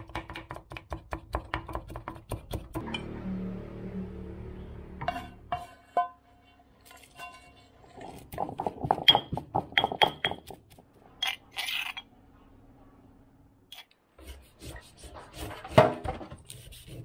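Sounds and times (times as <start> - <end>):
pestle pounding in stone mortar: 0.0 - 2.8, 8.3 - 10.8
metal spoon scraping stone bowl: 11.2 - 12.1.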